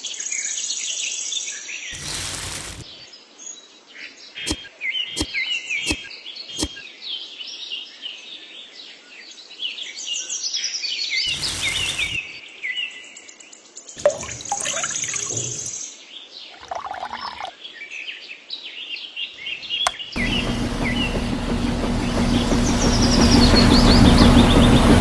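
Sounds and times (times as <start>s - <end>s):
small electric motor humming: 2.0s - 2.8s, 11.3s - 12.2s, 20.2s - 25.0s.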